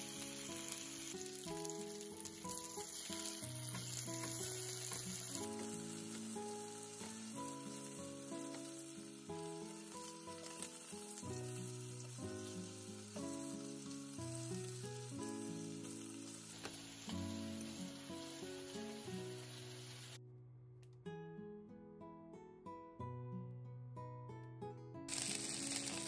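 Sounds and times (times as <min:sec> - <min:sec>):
chicken sizzling in oil: 0:00.0 - 0:20.2, 0:25.1 - 0:26.0
soft background music: 0:00.0 - 0:20.2.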